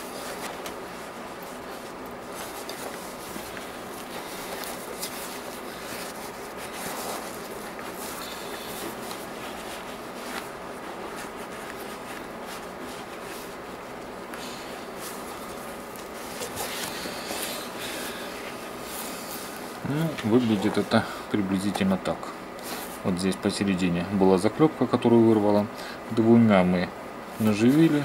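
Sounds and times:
rustling and rubbing of boot: 0:00.0 - 0:21.1
steady background hiss: 0:00.0 - 0:28.0.

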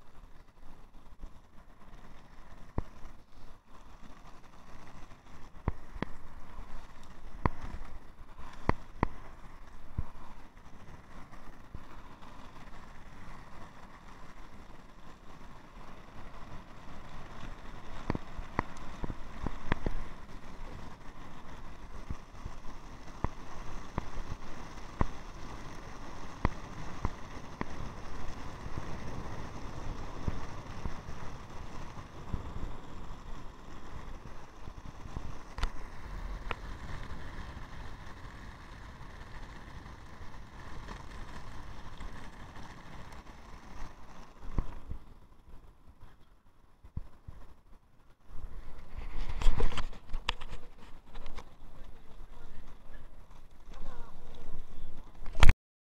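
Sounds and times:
skateboard clicks and knocks: 0:00.0 - 0:46.0
skateboard wheels rumbling on asphalt: 0:00.0 - 0:55.5
wind on microphone: 0:48.2 - 0:55.5.

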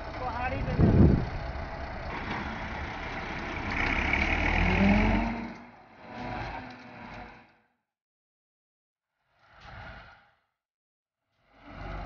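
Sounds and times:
diesel engine running: 0:00.0 - 0:07.5.

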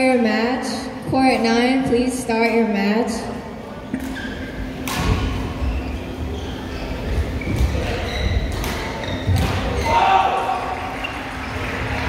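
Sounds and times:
racket hitting shuttlecock: 0:04.8 - 0:05.5, 0:08.5 - 0:09.8.

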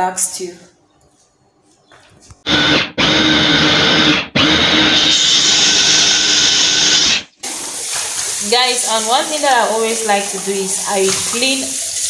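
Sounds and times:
blender motor running: 0:02.5 - 0:07.3.

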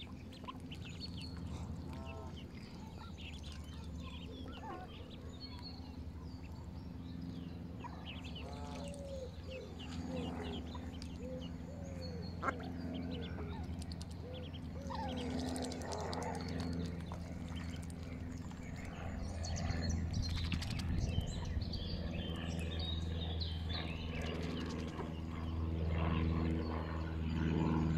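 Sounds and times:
birds chirping: 0:00.0 - 0:27.9
steady low hum: 0:00.0 - 0:27.9.

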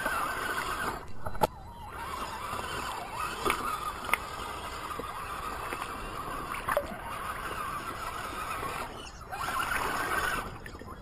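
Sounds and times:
toy car motor whining: 0:00.0 - 0:11.0
water splashing and gurgling: 0:00.0 - 0:11.0.

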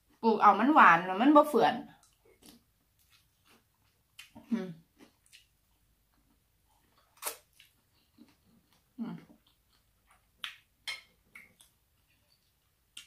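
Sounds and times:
person crunching food: 0:02.0 - 0:10.7.

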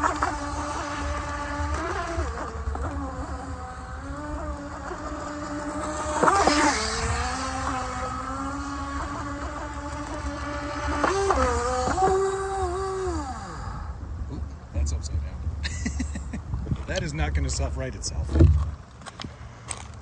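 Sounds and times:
toy truck motor whine: 0:00.0 - 0:14.0.

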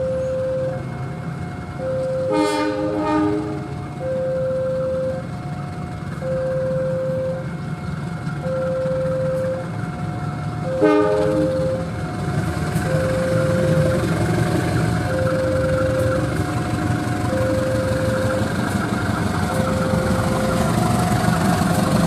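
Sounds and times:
two-tone alarm: 0:00.0 - 0:00.9, 0:01.8 - 0:03.0, 0:04.0 - 0:05.3, 0:06.2 - 0:07.6, 0:08.4 - 0:09.8, 0:10.6 - 0:12.0, 0:12.8 - 0:21.1
locomotive engine running: 0:00.0 - 0:22.0
locomotive horn: 0:02.0 - 0:05.2, 0:10.6 - 0:12.0.

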